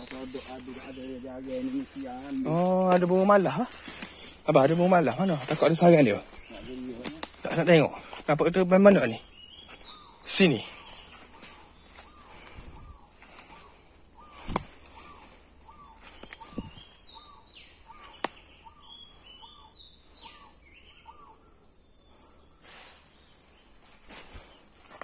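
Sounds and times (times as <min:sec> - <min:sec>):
footsteps snapping dry leaves: 0:00.0 - 0:04.5, 0:05.2 - 0:07.6
high insect drone: 0:00.0 - 0:25.0
gliding bird calls: 0:09.1 - 0:21.6.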